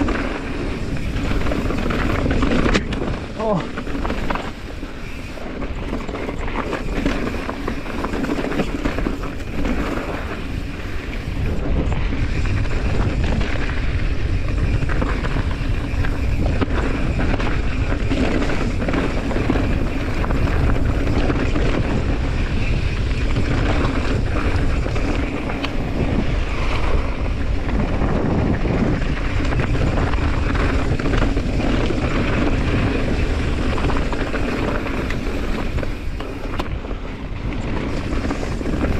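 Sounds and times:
bike tyres crunching on gravel: 0.0 - 38.9
wind on microphone: 0.0 - 38.9.

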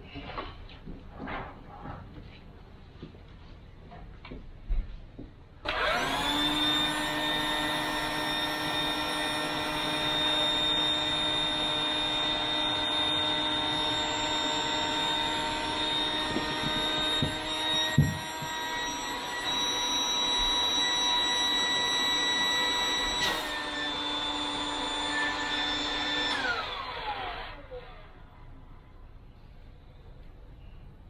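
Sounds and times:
electric air pump whine: 5.6 - 28.2.

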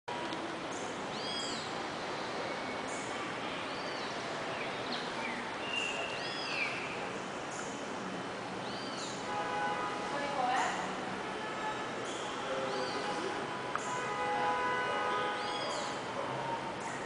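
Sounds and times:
bird chirping: 0.7 - 7.8, 15.4 - 16.0.

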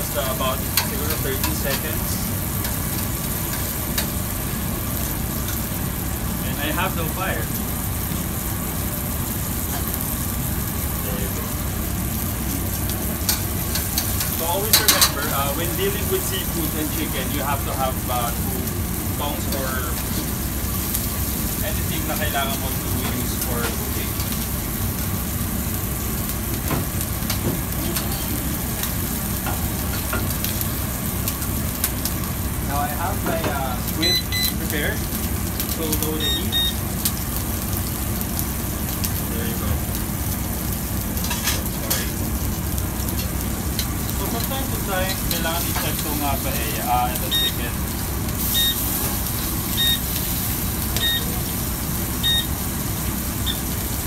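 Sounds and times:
food sizzling in hot pans: 0.0 - 54.0
steady background noise: 0.0 - 54.0
electronic beeper beeping: 34.0 - 34.6, 36.2 - 36.8, 47.3 - 47.6, 48.5 - 48.9, 49.7 - 50.1, 51.0 - 51.3, 52.2 - 52.5.

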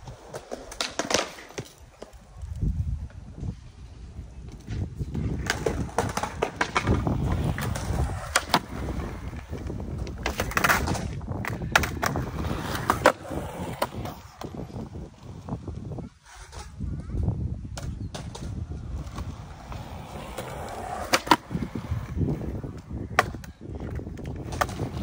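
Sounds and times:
skateboard wheels rolling on concrete: 0.0 - 25.0
skateboard clacking on concrete: 0.1 - 2.2, 4.6 - 14.8, 17.7 - 25.0.

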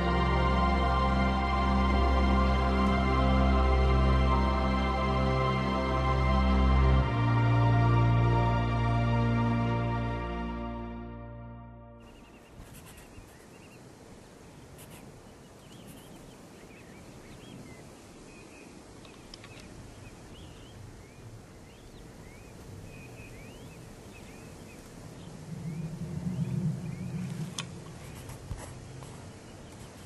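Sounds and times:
faint steady hum: 0.0 - 30.0
loud low rumble: 25.0 - 28.4.

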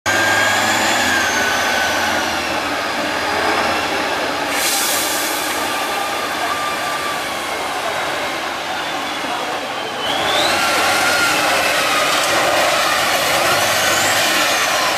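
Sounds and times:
truck engine whine under load: 0.1 - 14.9
sharp air hiss: 4.5 - 5.6.

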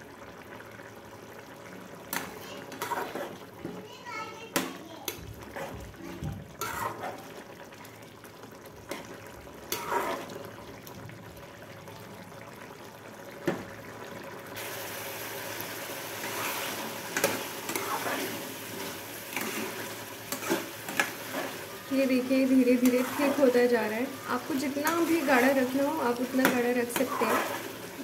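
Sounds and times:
curry bubbling in a pan: 0.0 - 28.0
sizzling hiss of frying: 1.8 - 10.8, 13.4 - 28.0.

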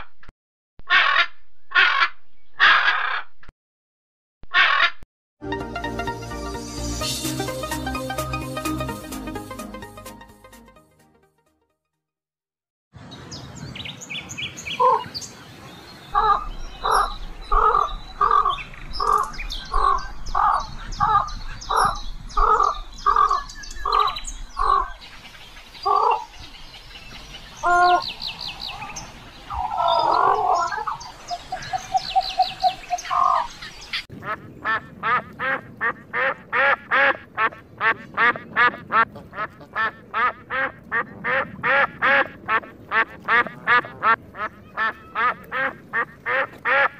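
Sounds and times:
waterfowl quacking: 34.2 - 46.9.

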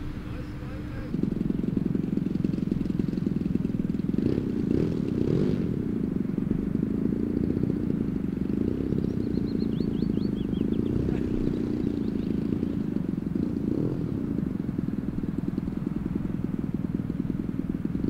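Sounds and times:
model plane engine droning: 0.0 - 18.0.

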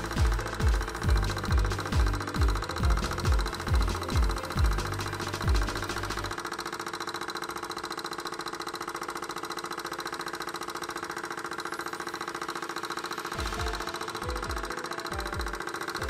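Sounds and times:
bass thump of background music: 0.0 - 6.3, 13.4 - 15.6
hot-air engine rapid pulsing: 0.0 - 16.0.

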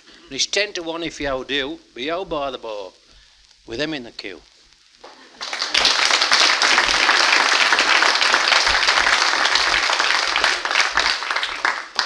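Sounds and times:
audience applauding: 5.0 - 12.0.

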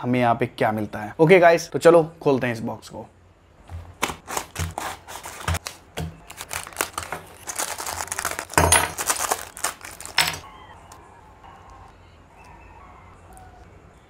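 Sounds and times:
cardboard box tearing: 4.0 - 10.2
plastic bags crinkling: 4.2 - 10.4.

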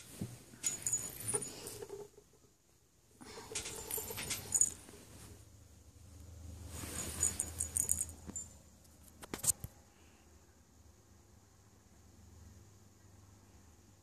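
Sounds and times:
rustling and crackling of stroking: 6.6 - 9.6.

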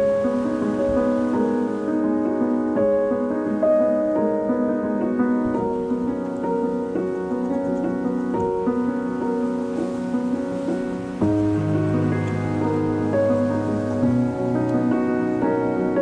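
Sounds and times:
slow piano music: 0.0 - 16.0.

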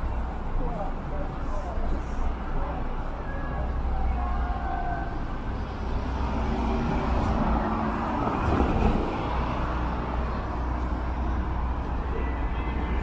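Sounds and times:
cars passing with low rumble: 0.0 - 13.0
vehicle passing close: 5.6 - 11.7.

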